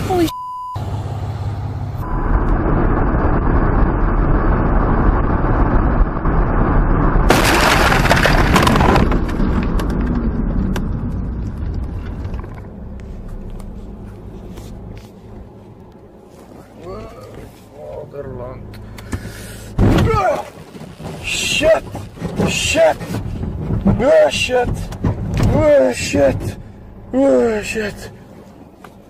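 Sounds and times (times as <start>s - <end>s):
car road and wind noise: 0.0s - 29.0s
windshield crash shattering: 7.3s - 10.1s, 19.8s - 26.5s.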